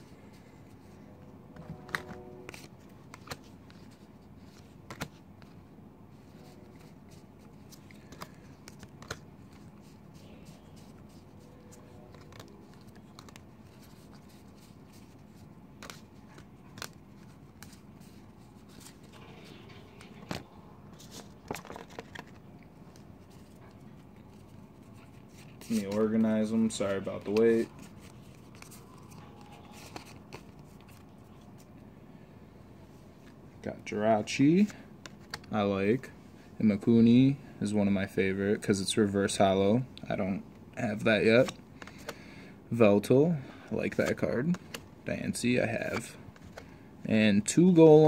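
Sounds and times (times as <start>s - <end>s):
trading cards clicking and rustling: 0.0s - 5.6s, 6.2s - 31.8s, 34.4s - 35.6s, 40.9s - 42.3s, 43.8s - 46.8s.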